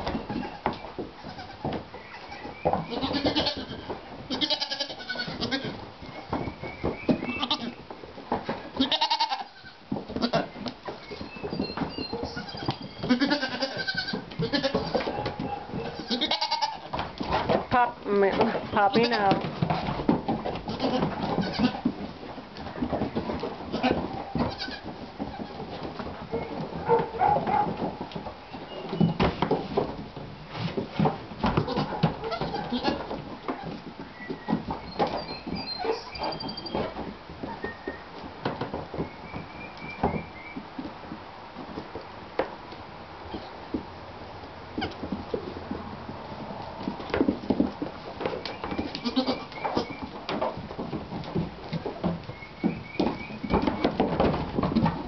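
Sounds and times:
hooves knocking on wooden floor: 0:00.0 - 0:55.0
goats bleating: 0:00.3 - 0:05.8, 0:07.3 - 0:07.8, 0:08.8 - 0:10.5, 0:12.2 - 0:16.9, 0:20.7 - 0:21.8, 0:23.7 - 0:25.7, 0:31.6 - 0:33.1, 0:48.9 - 0:50.0.

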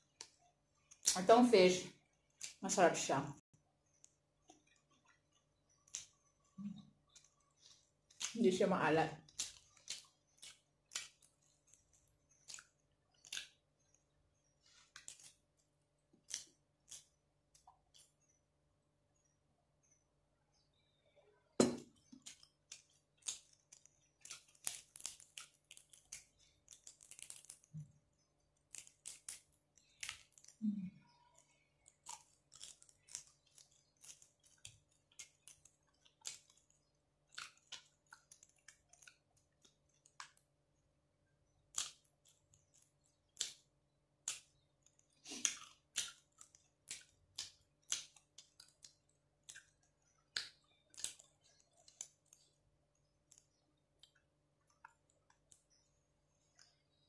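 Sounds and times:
chewing and wet mouth clicks: 0:09.2 - 0:13.6, 0:28.7 - 0:40.4, 0:44.2 - 0:52.5.

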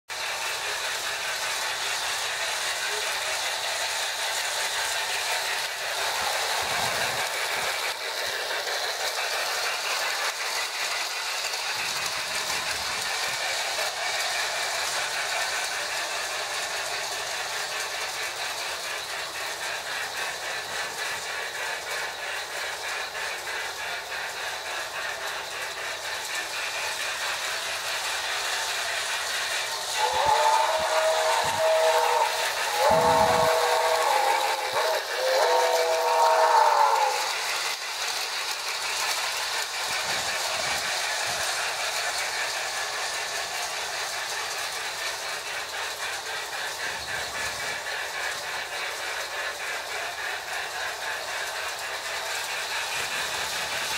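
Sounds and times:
hissing steam sound: 0:00.1 - 0:53.9
toy train running on track: 0:00.1 - 0:53.9
steam whistle chord: 0:30.0 - 0:37.3.

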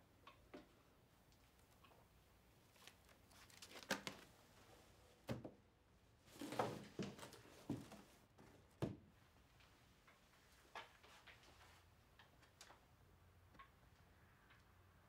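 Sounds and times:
rustling of books and pencils: 0:02.6 - 0:05.1, 0:06.2 - 0:08.8, 0:09.5 - 0:12.8.

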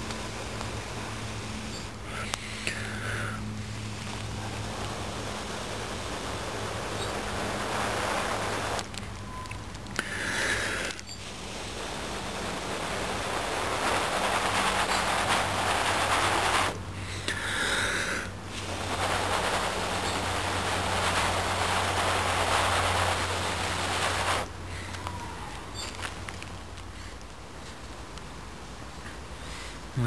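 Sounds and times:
person blowing long breaths: 0:02.0 - 0:03.6, 0:10.0 - 0:11.0, 0:17.0 - 0:18.4.

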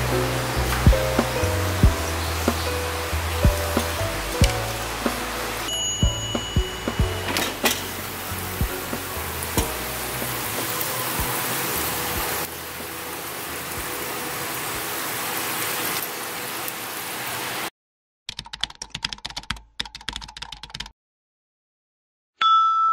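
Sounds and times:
keyboard typing clicks: 0:18.3 - 0:20.9.

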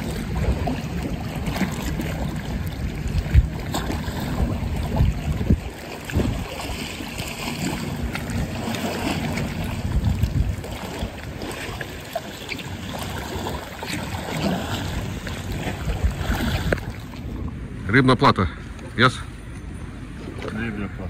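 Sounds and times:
water splashing from swimming: 0:00.0 - 0:17.6
wind rumble on microphone: 0:00.0 - 0:17.8.

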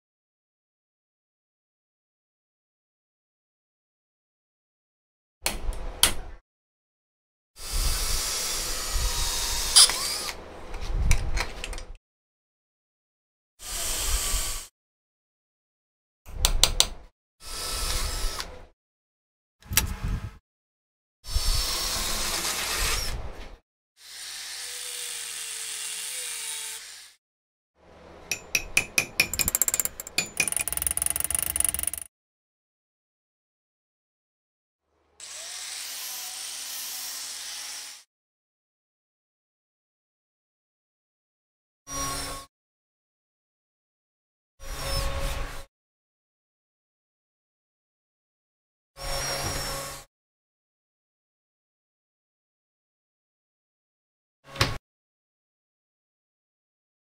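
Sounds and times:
power drill boring through steel: 0:07.6 - 0:10.4, 0:13.6 - 0:14.7, 0:17.4 - 0:18.5, 0:21.3 - 0:23.1, 0:24.0 - 0:27.2, 0:35.2 - 0:38.0
hammer striking steel: 0:28.3 - 0:32.1
short metal clicks: 0:29.3 - 0:32.1
angle grinder cutting steel: 0:29.4 - 0:32.1.

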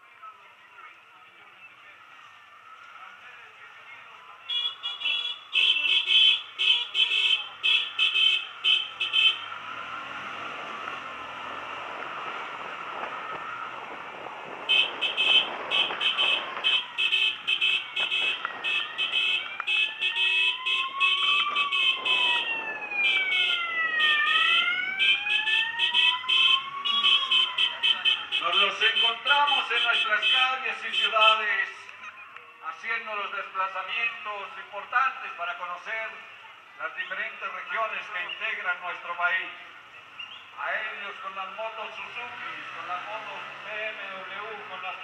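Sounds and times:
wailing siren: 0:07.9 - 0:30.0
high-pitched siren beeping: 0:15.8 - 0:29.7.

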